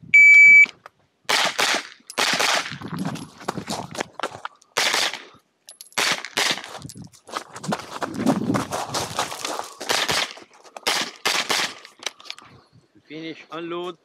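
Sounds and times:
carbine gunshots: 1.3s - 2.7s, 4.8s - 5.2s, 9.9s - 11.9s.

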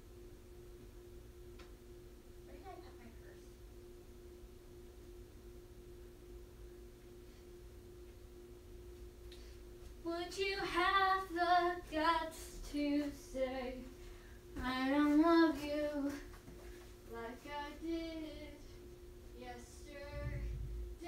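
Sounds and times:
low steady hum: 0.0s - 21.0s
woman singing: 10.0s - 14.0s, 14.6s - 16.3s, 17.1s - 18.7s, 19.4s - 21.0s.

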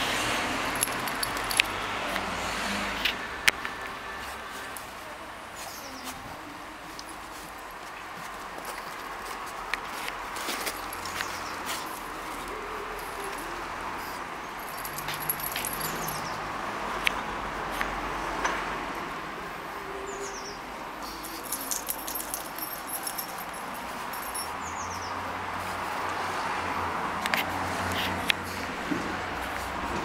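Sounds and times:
outdoor background noise: 0.0s - 30.0s
dogs scuffling: 7.2s - 16.3s.

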